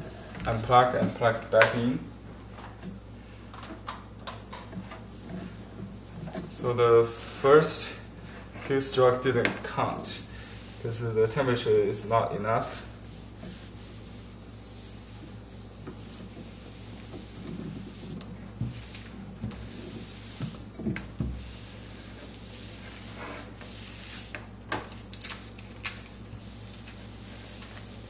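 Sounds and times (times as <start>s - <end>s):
iron sliding over paper: 12.7s - 24.4s, 26.0s - 28.0s.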